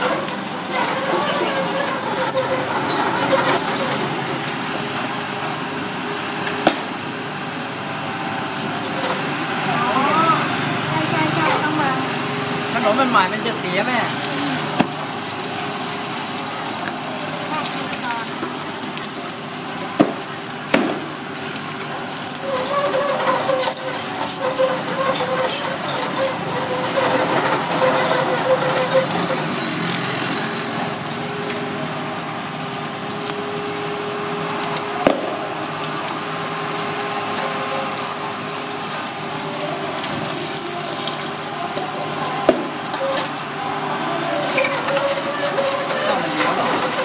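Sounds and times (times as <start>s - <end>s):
spatula scraping a wok: 0.0s - 4.3s, 22.4s - 31.0s, 44.3s - 47.0s
egg sizzling in oil: 11.3s - 47.0s.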